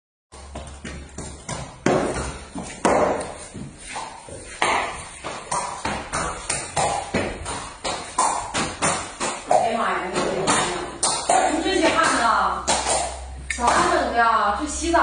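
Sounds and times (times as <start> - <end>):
horse hooves clopping on tiles: 0.3 - 14.0.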